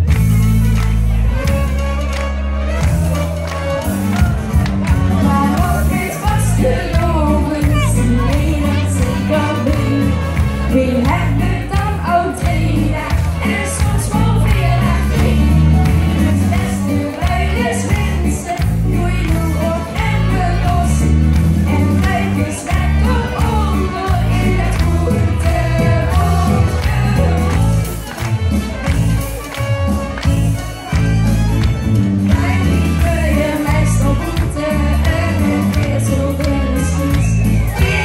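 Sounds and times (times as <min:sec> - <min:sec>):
women singing into microphones: 0:05.2 - 0:28.0, 0:32.3 - 0:38.0.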